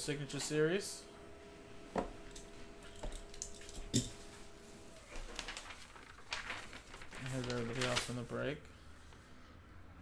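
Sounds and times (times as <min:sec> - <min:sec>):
paper sheet rustling: 0:04.5 - 0:09.3.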